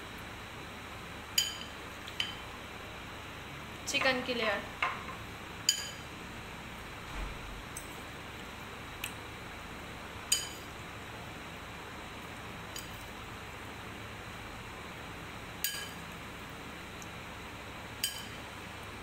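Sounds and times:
spoon clinking against glass dish: 0:18.0 - 0:18.4.

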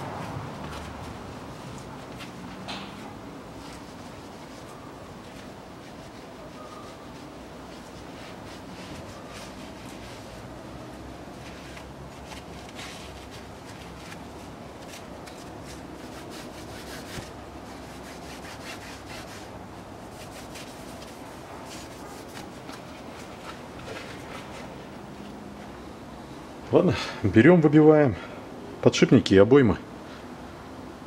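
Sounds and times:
cloth rag wiping metal: 0:00.2 - 0:25.0.

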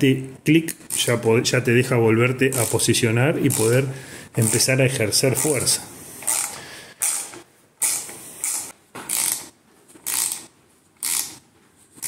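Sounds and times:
ratchet wrench clicking: 0:06.2 - 0:11.4.

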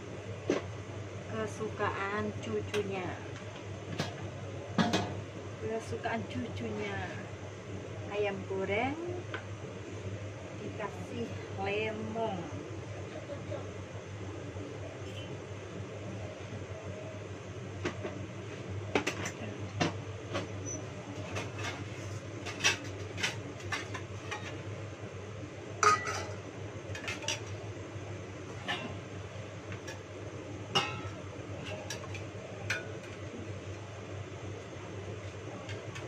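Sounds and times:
steady low hum: 0:00.0 - 0:36.0
pots and pans clattering: 0:21.2 - 0:24.6, 0:25.8 - 0:27.6, 0:30.7 - 0:33.2.

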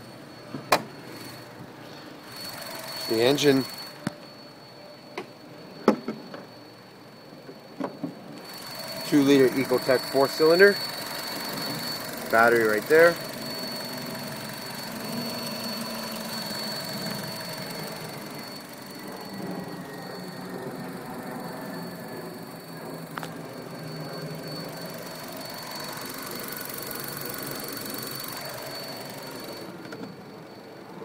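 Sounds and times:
car engine idling: 0:24.8 - 0:29.5.

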